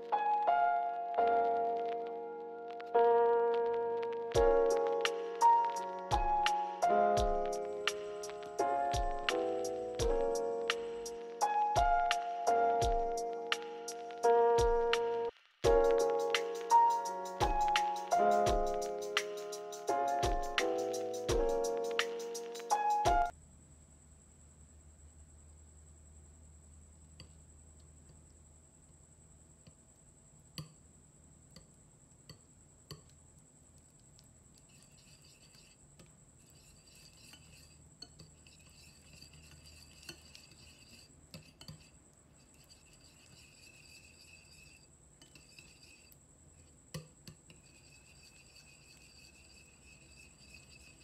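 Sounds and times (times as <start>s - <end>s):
whisk scraping through butter: 34.6s - 46.7s, 47.3s - 51.0s
whisk clinking against glass: 36.4s - 46.1s, 47.0s - 51.0s.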